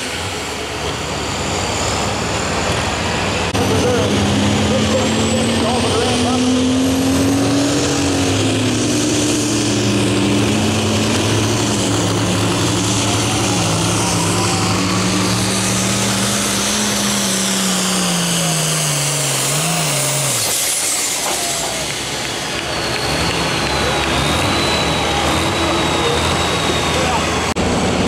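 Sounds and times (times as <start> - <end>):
diesel tractor engine under load: 0.0 - 28.0.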